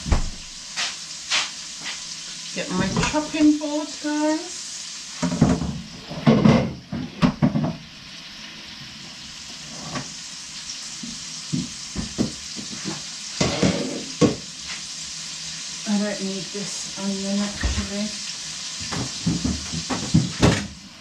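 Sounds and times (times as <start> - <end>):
meat sizzling in a pan: 0.0 - 21.0.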